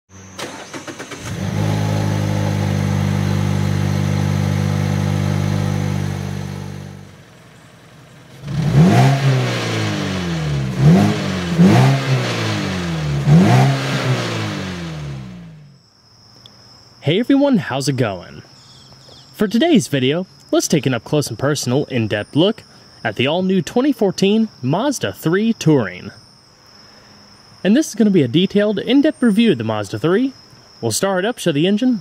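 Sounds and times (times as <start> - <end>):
car engine starting and idling: 0.1 - 15.8
car engine revving: 0.3 - 15.8.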